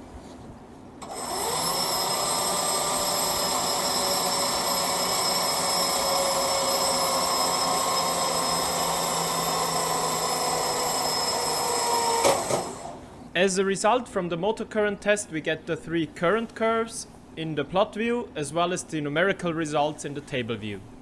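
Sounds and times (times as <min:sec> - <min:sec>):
spring-charging motors whining: 0:01.0 - 0:13.0.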